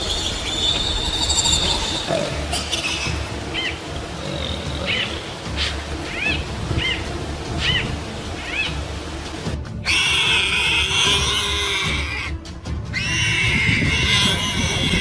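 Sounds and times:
animal giving high calls: 9.8s - 15.0s.

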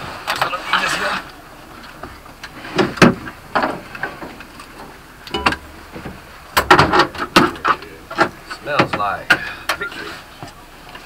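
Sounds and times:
knocks and clanks against metal: 5.3s - 9.8s.

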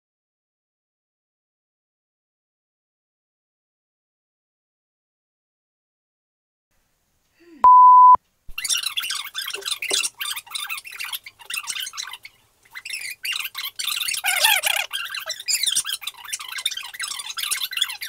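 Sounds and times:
electronic beep: 7.6s - 8.2s
high-pitched squeaky chatter: 8.6s - 18.0s.

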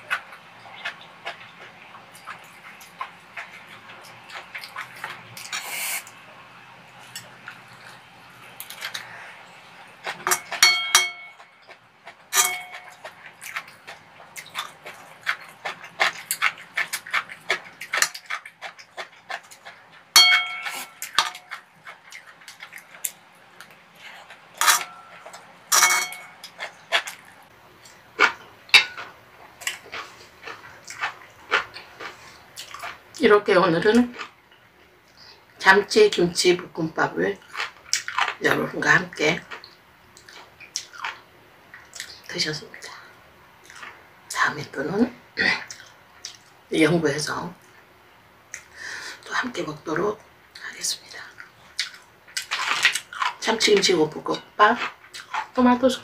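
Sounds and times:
chewing: 0.0s - 33.3s, 33.9s - 35.4s, 37.4s - 42.3s, 43.6s - 44.0s, 45.5s - 46.6s, 50.5s - 56.0s
spoon and chopsticks scraping pan: 10.1s - 11.5s, 12.3s - 13.1s, 20.2s - 21.6s, 24.6s - 26.6s.

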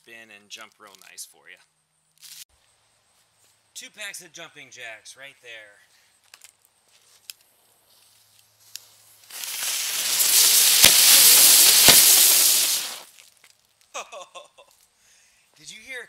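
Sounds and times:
ground-spinner fireworks hissing: 9.2s - 13.1s
firework popping: 9.2s - 13.2s.

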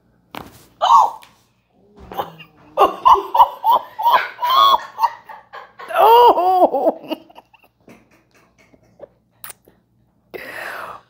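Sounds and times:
woman laughing: 2.0s - 9.1s.

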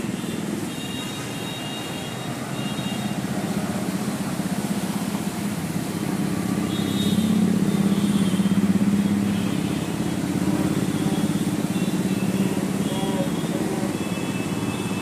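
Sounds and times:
vehicle engine humming: 2.3s - 15.0s.

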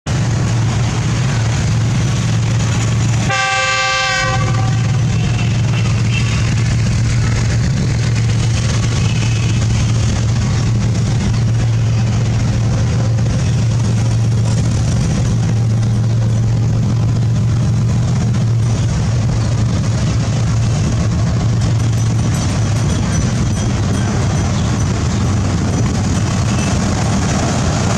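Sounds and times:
locomotive engine drone: 0.1s - 27.9s
locomotive horn blast: 3.2s - 6.6s.

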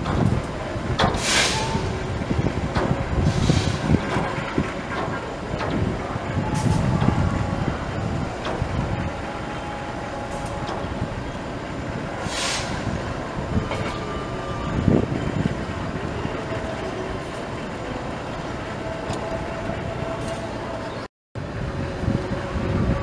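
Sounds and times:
diesel locomotive running: 0.0s - 23.0s
short hiss: 1.2s - 1.8s, 12.2s - 12.8s.

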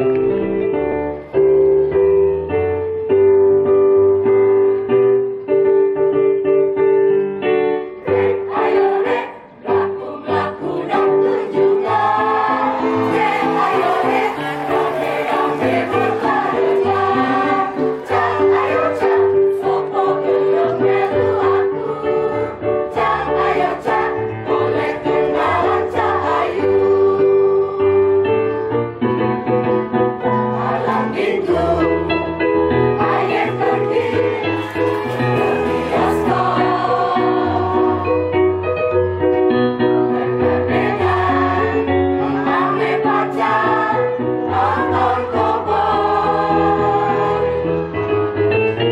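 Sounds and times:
musical accompaniment: 0.0s - 48.9s
mixed choir singing: 8.0s - 28.4s, 30.3s - 38.4s, 40.4s - 48.4s.

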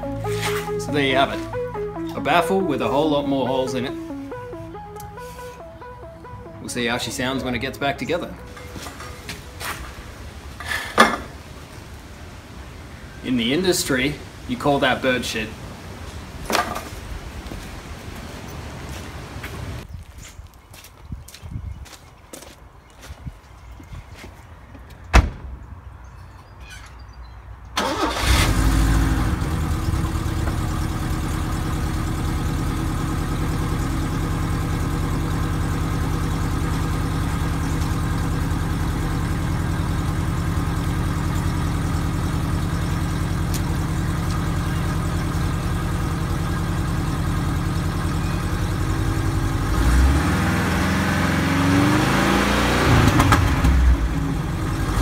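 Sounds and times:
car engine starting: 0.0s - 10.8s, 27.8s - 55.0s
engine revving: 27.8s - 46.4s, 47.9s - 55.0s
car engine idling: 27.8s - 55.0s.

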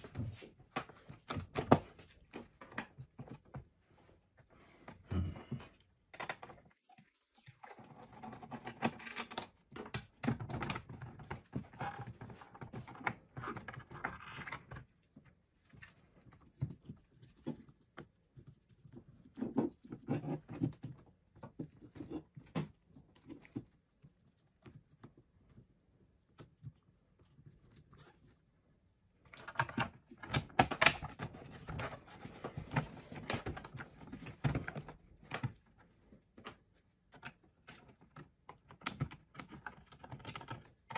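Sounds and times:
small plastic clicks and knocks: 29.3s - 31.9s, 36.4s - 40.9s.

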